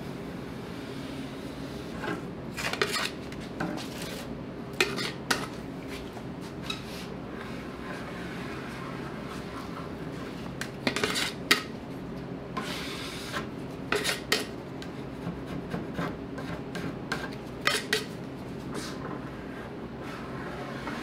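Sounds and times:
metal scraper scraping wood: 2.6s - 3.2s, 10.8s - 11.7s, 12.6s - 14.5s, 15.5s - 18.1s.

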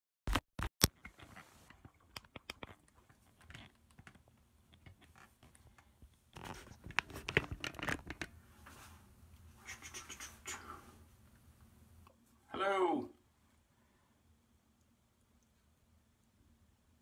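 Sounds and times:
rustling and scraping: 0.9s - 10.4s.

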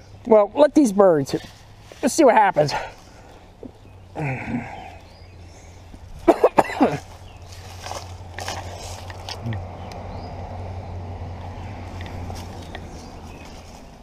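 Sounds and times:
person coughing: 6.2s - 7.1s.

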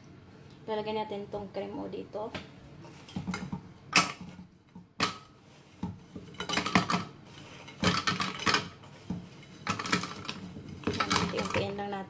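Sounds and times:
cookies clattering into plastic jar: 6.4s - 7.1s, 7.7s - 8.8s, 9.6s - 11.8s.

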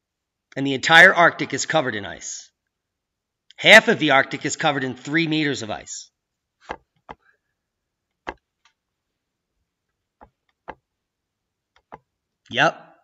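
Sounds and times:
computer mouse clicking: 8.2s - 8.8s, 11.8s - 12.1s.

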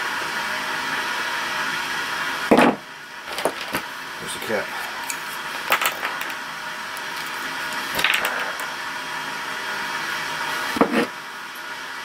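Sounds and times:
fan-like hiss: 0.0s - 12.0s
hand tools rattling: 5.0s - 6.4s.

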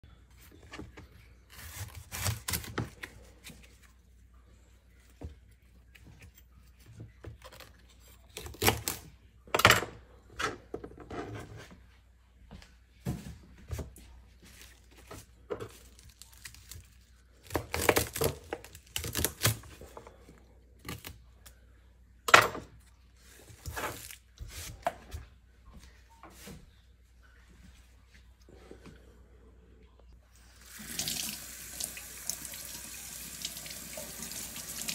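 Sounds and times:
celery stalks snapping and tearing: 15.7s - 19.7s.

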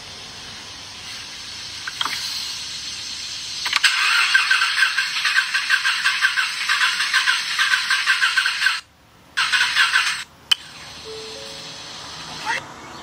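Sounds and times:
car engine sputtering start: 1.8s - 8.8s, 9.4s - 11.0s.

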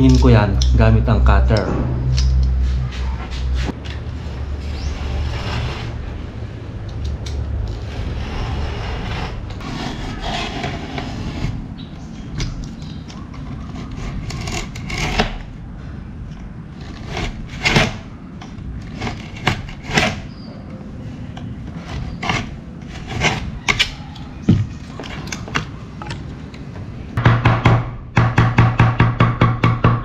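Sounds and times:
utility knife scraping along edge: 7.8s - 11.7s, 13.2s - 15.5s, 21.4s - 24.0s.

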